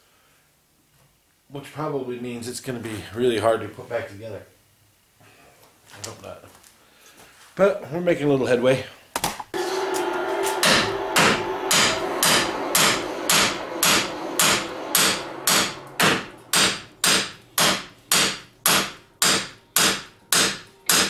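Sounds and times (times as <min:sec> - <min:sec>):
hammer blows on metal: 0:09.6 - 0:21.0.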